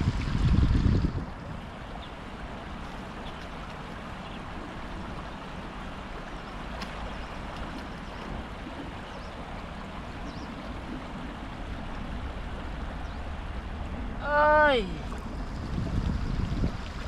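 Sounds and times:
river water flowing over stones: 0.0s - 17.0s.

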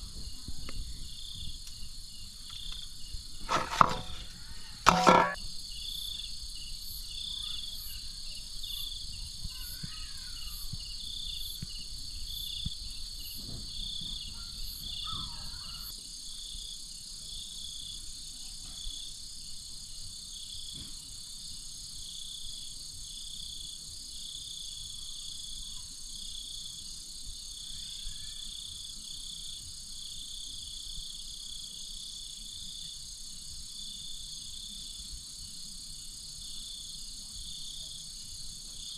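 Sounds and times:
crickets trilling: 0.0s - 38.9s.

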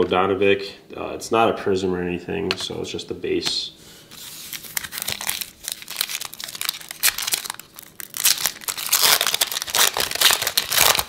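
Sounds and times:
foil wrapper crinkling and tearing: 4.2s - 11.0s.

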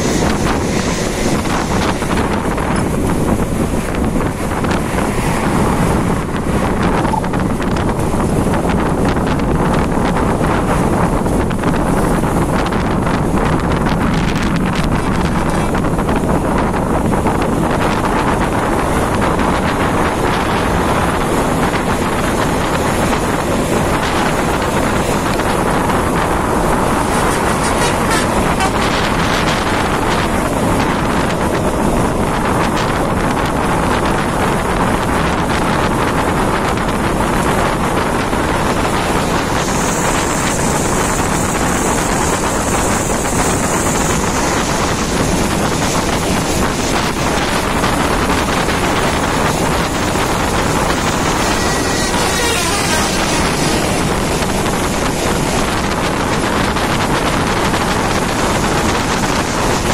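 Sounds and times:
bus road noise: 0.0s - 59.9s
wind on microphone: 0.0s - 59.9s.

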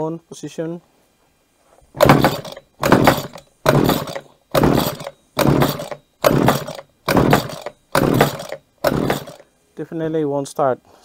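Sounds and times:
recoil starter pulls: 1.9s - 9.4s
small engine cranking: 2.0s - 9.4s.

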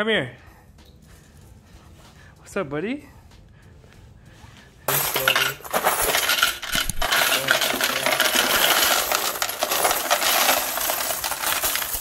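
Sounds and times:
coins clattering into coin counter: 4.9s - 12.0s.

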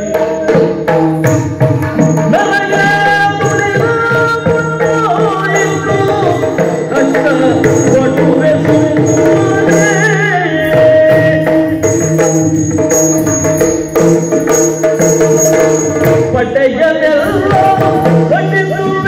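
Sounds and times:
drums beating loudly: 0.0s - 19.0s
person singing: 2.0s - 12.0s, 16.3s - 19.0s.

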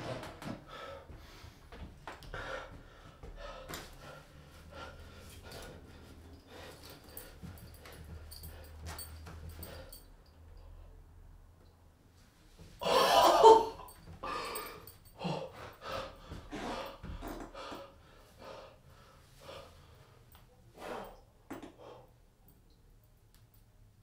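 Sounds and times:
man gasping and breathing heavily: 0.6s - 10.1s, 12.8s - 20.2s.

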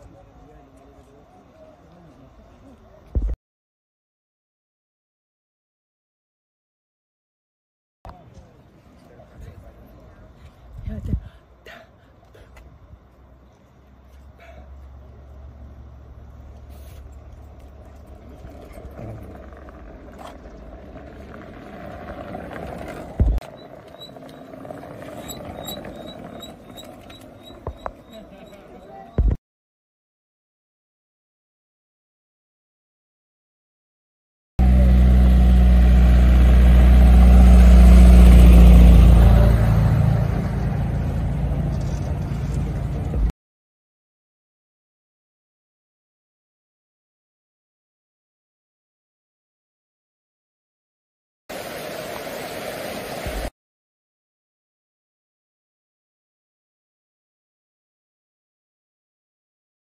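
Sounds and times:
scooter rumbling over stone paving: 17.2s - 29.3s.

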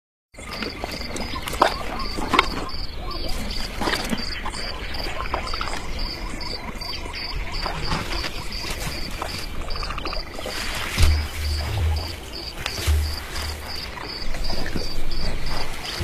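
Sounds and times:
insect chirping: 0.4s - 16.0s
low steady rumble: 11.0s - 13.8s
short sharp sounds: 11.0s - 13.9s.

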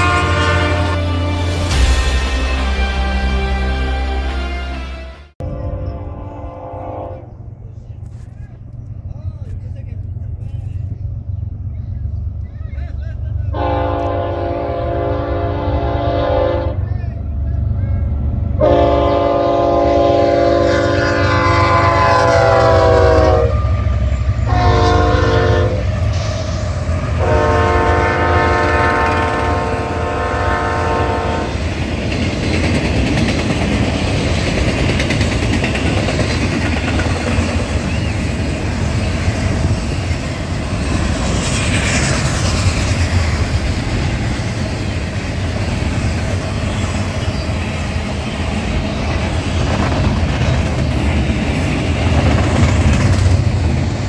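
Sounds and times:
locomotive air horn blasts: 0.0s - 7.3s, 13.5s - 16.8s, 18.6s - 25.9s, 27.2s - 31.5s
train rolling past rumbling: 0.0s - 54.0s
clickety-clack of wheels on rails: 7.8s - 14.1s, 31.4s - 54.0s.

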